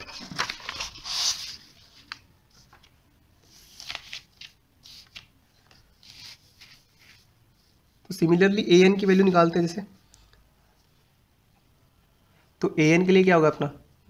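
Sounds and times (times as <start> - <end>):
paper rustling and sliding: 0.0 - 7.7.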